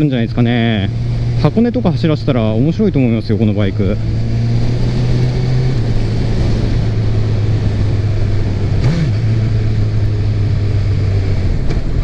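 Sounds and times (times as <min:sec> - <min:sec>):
motorcycle engine cruising: 0:00.0 - 0:12.0
wind and road noise: 0:00.0 - 0:12.0.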